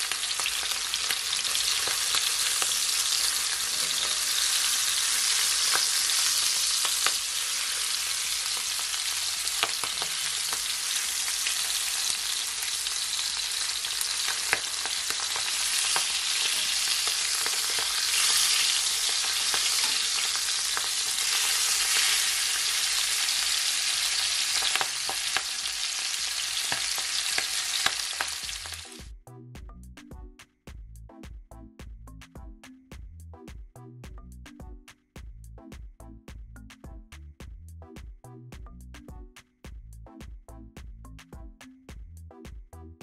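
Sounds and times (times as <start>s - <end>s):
fish sizzling in a skillet: 0.0s - 29.1s.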